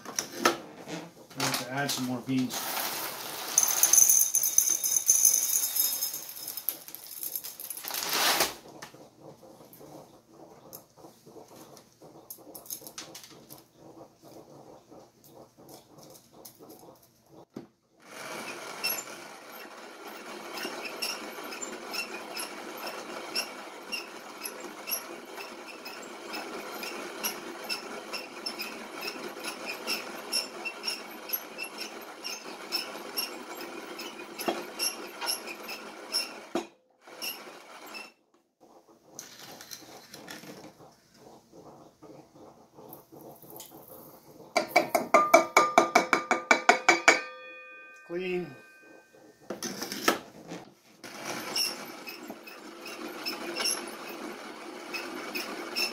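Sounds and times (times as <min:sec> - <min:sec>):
light clicks of beans loaded: 0:01.4 - 0:08.4
coffee grinder crunching beans: 0:01.4 - 0:08.6, 0:18.0 - 0:38.1, 0:39.2 - 0:40.6, 0:49.5 - 0:55.9.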